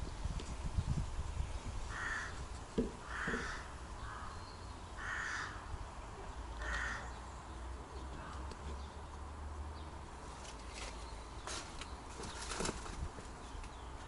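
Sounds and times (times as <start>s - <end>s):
bird calling: 3.0s - 5.7s.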